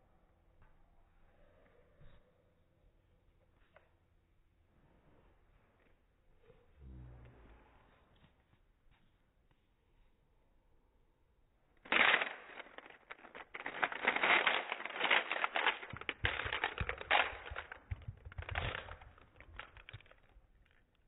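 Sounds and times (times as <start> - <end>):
loud plastic crack: 11.9 - 20.8
plastic clicks and rattling: 11.9 - 21.0.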